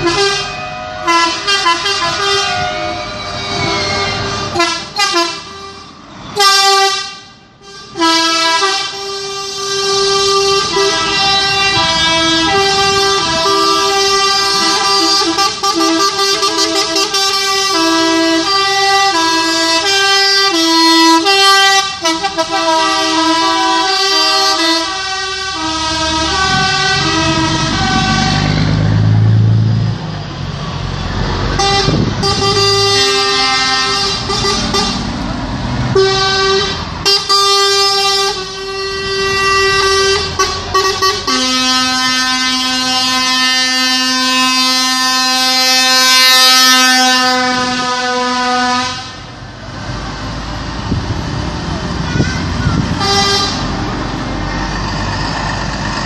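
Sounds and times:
truck air horns: 0:00.0 - 0:28.9, 0:31.5 - 0:35.3, 0:35.9 - 0:49.4, 0:52.0 - 0:55.6
truck engine passing: 0:00.0 - 0:56.0.

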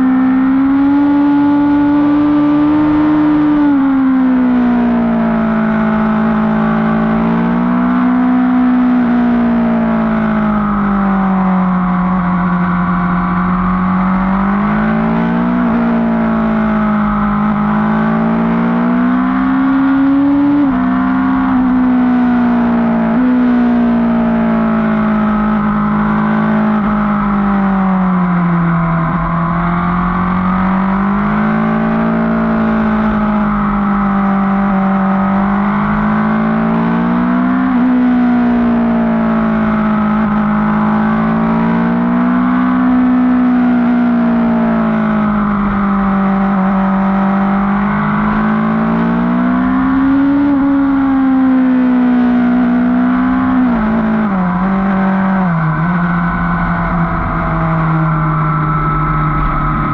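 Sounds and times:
motorcycle engine running: 0:52.8 - 0:59.9.

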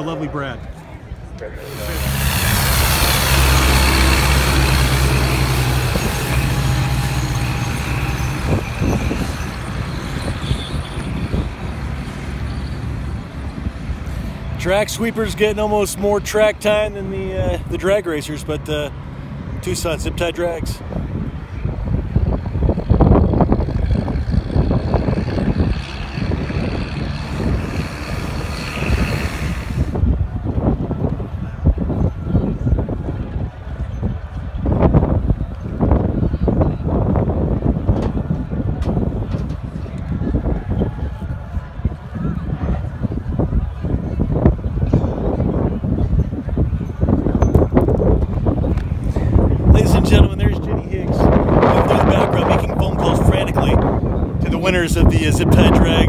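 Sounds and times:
wind buffeting microphone: 0:00.0 - 0:56.0
tractor engine drone: 0:01.3 - 0:16.8, 0:17.6 - 0:30.8
sweeper rushing noise: 0:01.5 - 0:15.5, 0:25.4 - 0:30.3.

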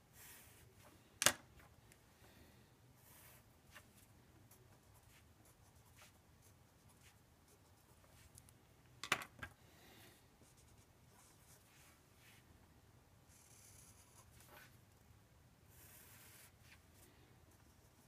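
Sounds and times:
marker scratching on paper: 0:04.7 - 0:08.3, 0:15.7 - 0:16.8.

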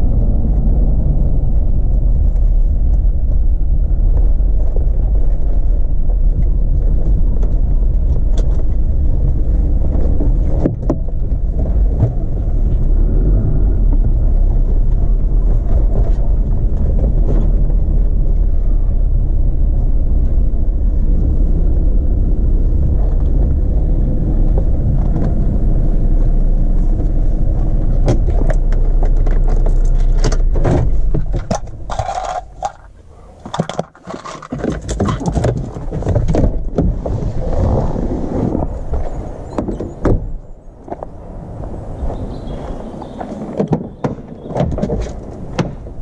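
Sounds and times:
vehicle engine rumbling: 0:00.0 - 0:46.0
metallic rattles: 0:28.2 - 0:36.5.

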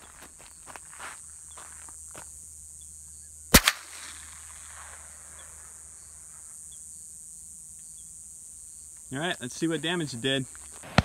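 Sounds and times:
rifle shot: 0:03.5 - 0:05.4.

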